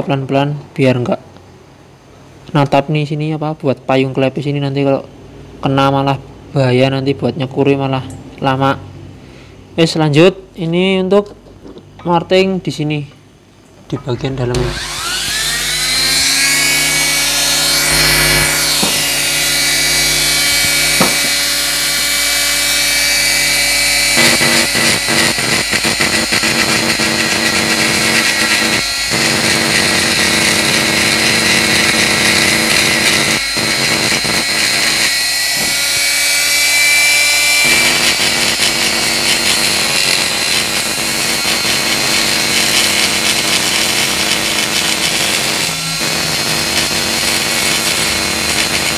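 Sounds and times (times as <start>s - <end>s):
die grinder whining: 14.5s - 48.9s
grinder bit grinding metal: 14.5s - 48.9s.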